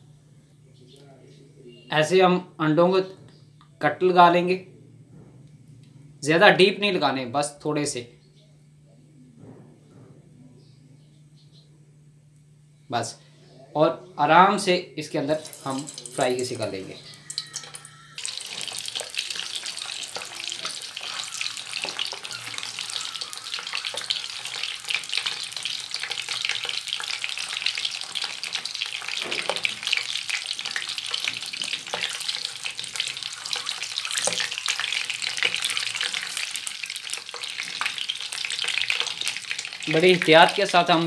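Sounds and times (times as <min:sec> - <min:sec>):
eggs sizzling in hot oil: 0:15.3 - 0:41.0.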